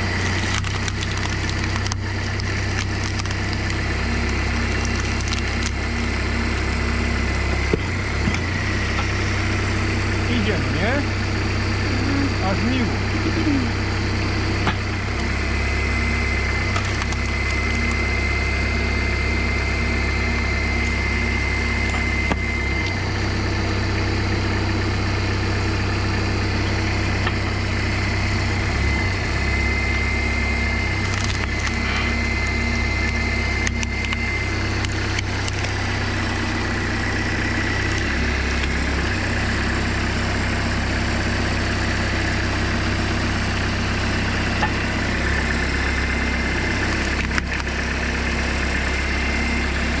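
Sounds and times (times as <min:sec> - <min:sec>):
wood cracking: 0:00.0 - 0:06.7, 0:16.5 - 0:18.1, 0:30.9 - 0:36.2, 0:46.8 - 0:47.8
tractor engine running: 0:00.0 - 0:50.0
high whine: 0:03.7 - 0:50.0.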